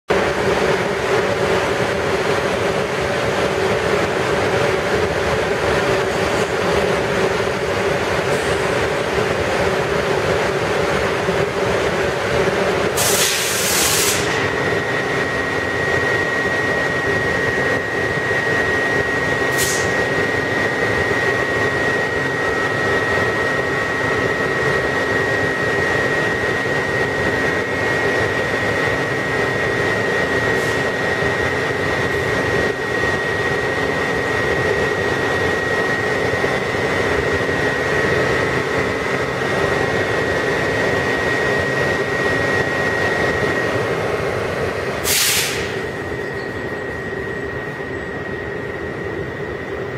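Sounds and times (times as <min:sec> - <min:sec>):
high whine: 0:00.1 - 0:49.9
train equipment hum: 0:00.1 - 0:49.9
loud air hiss: 0:12.9 - 0:14.5, 0:19.5 - 0:20.0, 0:45.0 - 0:45.9.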